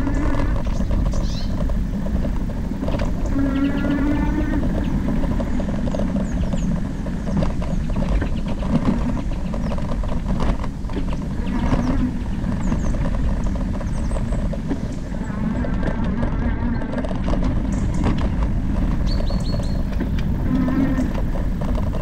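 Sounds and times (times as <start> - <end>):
bike rattling and knocking: 0.0 - 22.0
wind on microphone: 0.0 - 22.0.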